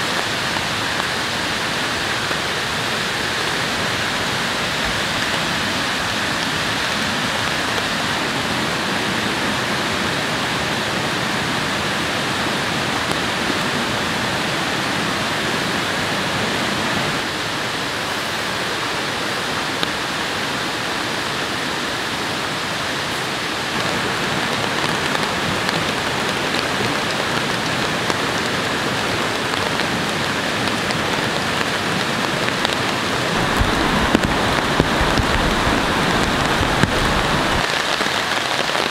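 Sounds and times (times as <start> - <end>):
fast-flowing river rushing: 0.0 - 38.9
heavy rain: 0.0 - 38.9
raindrops pattering on a surface: 22.0 - 38.9.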